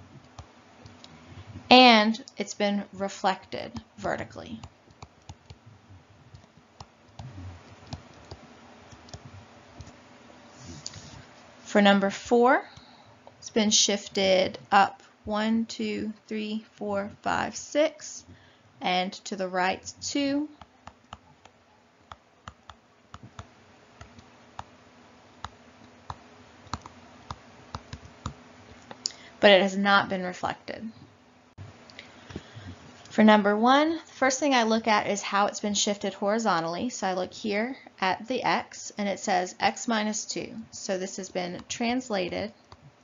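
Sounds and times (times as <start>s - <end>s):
faint steady hum: 0.0s - 43.0s
stylus tapping on tablet: 20.5s - 24.7s.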